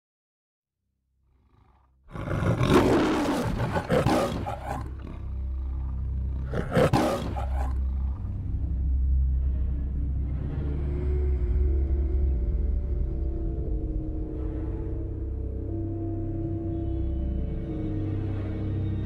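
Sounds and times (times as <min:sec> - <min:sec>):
lion roar: 0:01.3 - 0:08.6
low rumble: 0:07.5 - 0:17.6.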